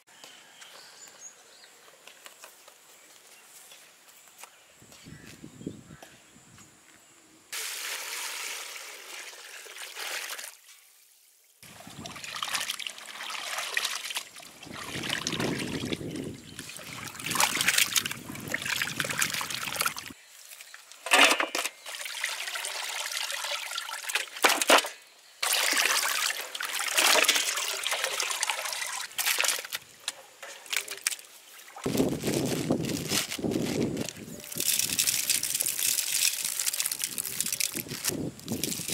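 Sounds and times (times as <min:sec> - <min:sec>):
water sloshing in a basin: 0:11.6 - 0:31.9.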